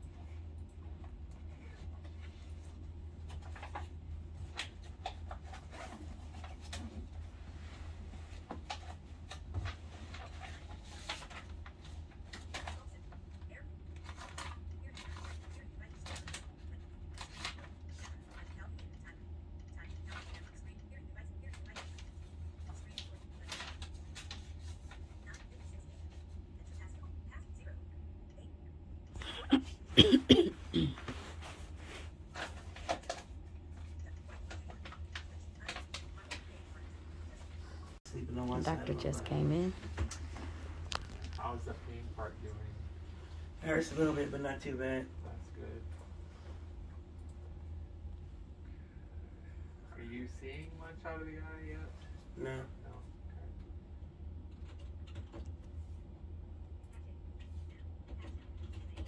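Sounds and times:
low steady hum: 0.0 - 59.0
person coughing: 29.2 - 31.2.

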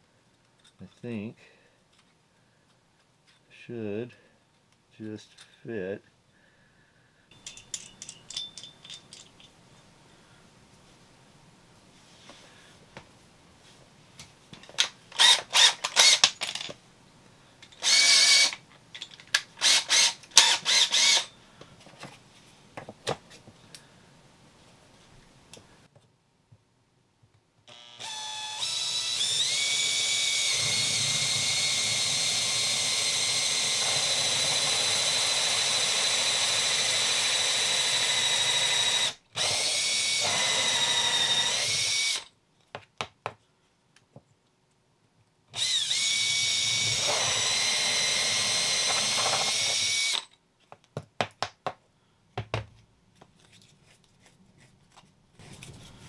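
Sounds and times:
drill spinning hole saw through wood: 15.2 - 16.3, 17.8 - 18.6, 19.6 - 21.3, 27.7 - 42.3, 45.6 - 50.3
clicks and taps: 42.7 - 43.4.

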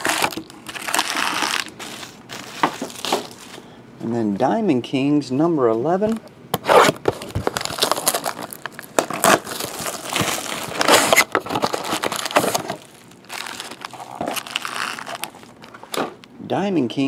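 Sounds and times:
shrink wrap crinkling and tearing: 0.0 - 3.5, 7.0 - 16.0
foil packs rustling: 0.0 - 3.7, 6.8 - 16.3.

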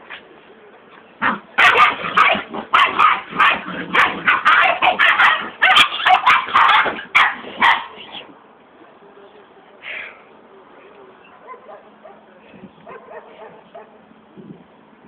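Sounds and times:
puppies barking and yapping: 1.6 - 8.2.

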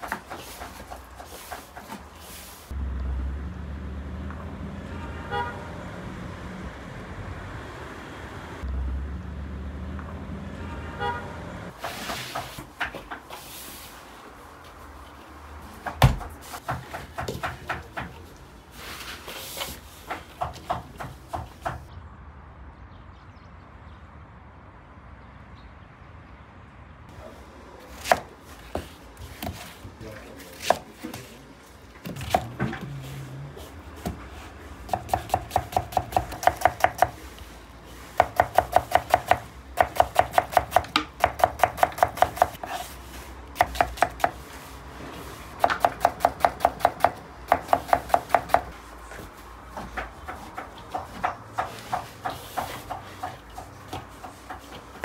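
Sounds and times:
knife chopping on wooden board: 34.9 - 37.2, 38.2 - 42.8, 43.6 - 44.4, 49.9 - 54.8.

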